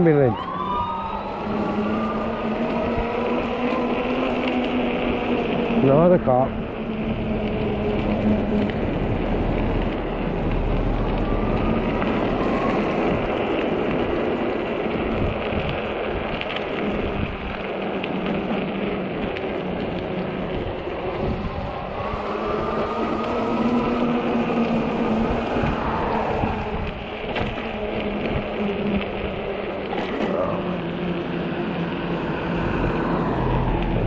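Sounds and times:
faint rising motor whine: 0.0 - 13.6
bike tyres rolling on pavement: 0.0 - 34.0
wind buffeting microphone: 0.0 - 34.0.

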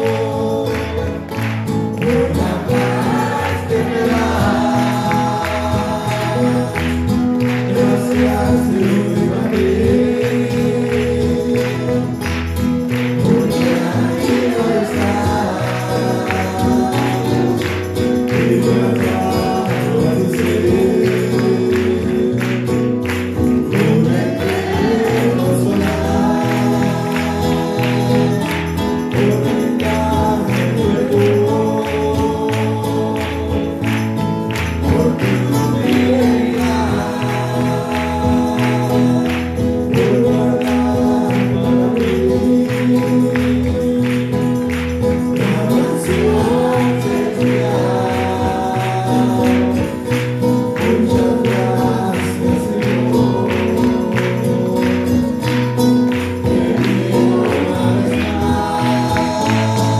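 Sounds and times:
acoustic guitar: 0.0 - 59.9
keyboard: 0.0 - 59.9
men singing worship song: 0.0 - 59.9.

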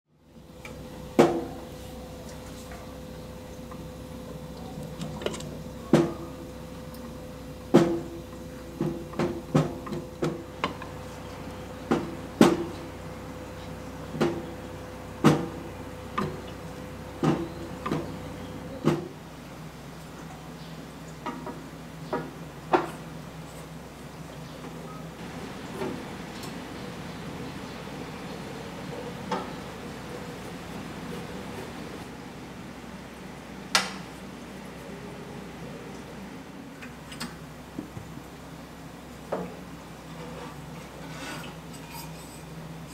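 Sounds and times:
faint steady hum: 0.1 - 42.9.

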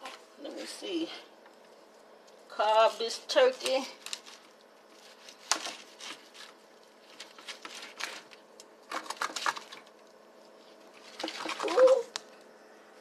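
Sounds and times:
utensil clicks and scrapes on foil pan: 3.4 - 10.0.

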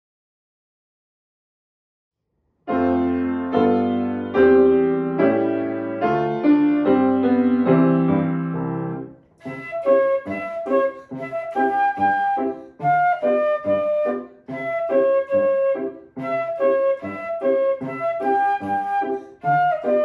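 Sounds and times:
grand piano playing march: 2.7 - 20.0
flute playing short notes: 9.4 - 20.0.

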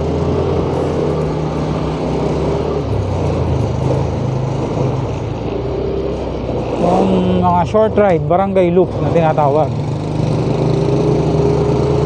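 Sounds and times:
scooter engine running: 0.0 - 5.4.

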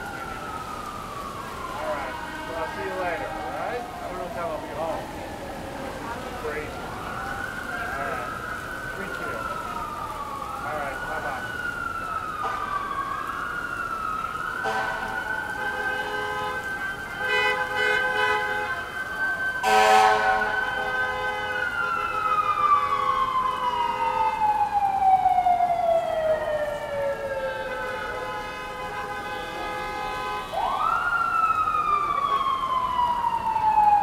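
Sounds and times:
emergency siren wailing: 0.0 - 34.0
rain: 0.0 - 34.0
vehicle horn blasts: 19.6 - 20.5.

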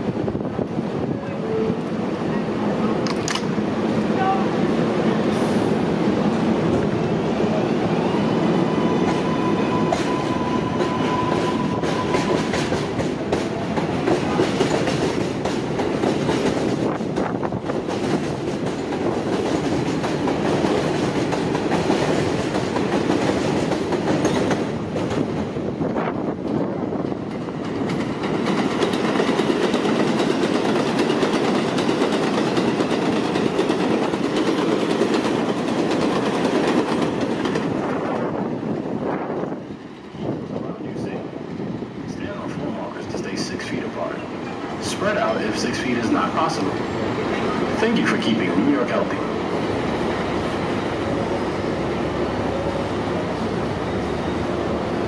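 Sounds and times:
train wheels clattering on rails: 2.8 - 3.8, 8.8 - 41.0.

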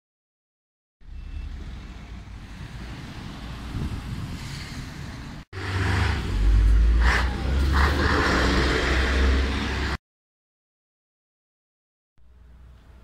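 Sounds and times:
light road traffic: 1.0 - 10.0, 12.2 - 13.0
lorry diesel engine rumbling: 1.0 - 10.0.

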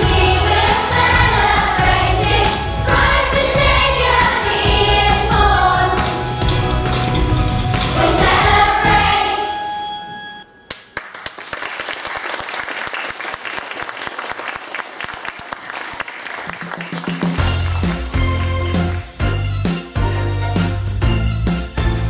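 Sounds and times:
children's choir singing: 0.0 - 7.0, 7.7 - 9.9
applause: 10.7 - 19.0.

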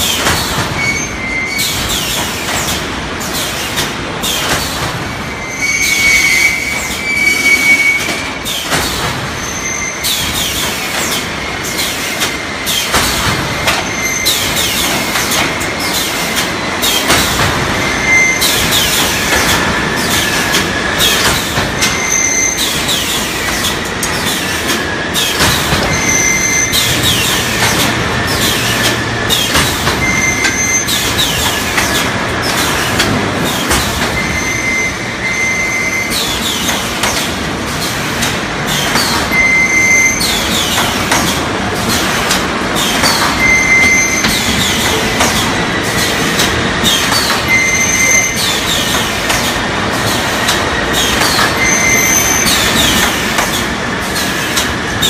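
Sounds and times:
high squealing tones: 5.3 - 8.6, 21.9 - 23.5, 25.2 - 32.0, 34.2 - 36.7, 38.8 - 40.8, 42.8 - 45.2, 46.8 - 48.9, 50.8 - 53.0
metallic machine clatter: 18.4 - 34.2, 36.1 - 39.4, 40.2 - 55.0.

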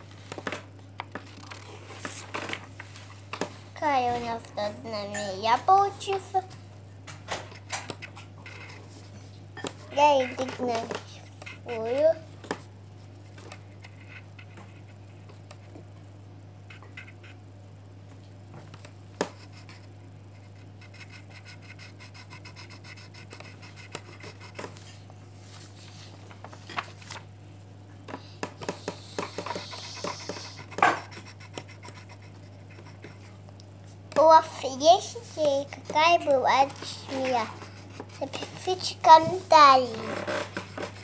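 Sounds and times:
steady low hum: 0.0 - 41.0
pencil scratching on paper: 19.2 - 25.0, 28.7 - 33.4, 35.0 - 41.0.

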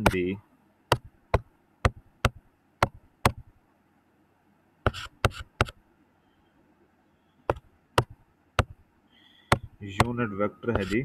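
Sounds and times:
stylus tapping on pen tablet: 0.9 - 3.5, 4.9 - 5.8, 7.5 - 8.8, 9.5 - 11.0.

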